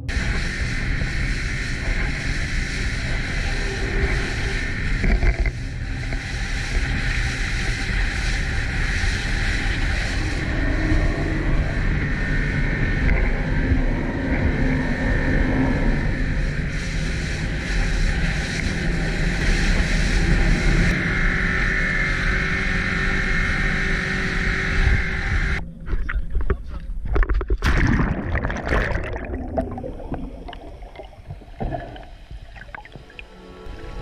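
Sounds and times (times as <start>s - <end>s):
water against hull: 0.0s - 11.4s, 25.8s - 34.0s
wind: 0.0s - 27.6s
boat engine: 0.0s - 34.0s
muffled underwater bubbling: 26.0s - 34.0s
splash into sea: 27.4s - 32.2s.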